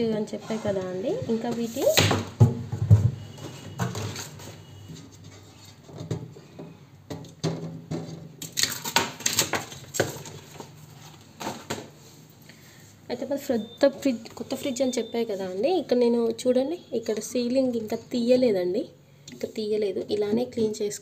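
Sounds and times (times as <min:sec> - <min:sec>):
crackly plastic rustles: 0:08.4 - 0:11.9.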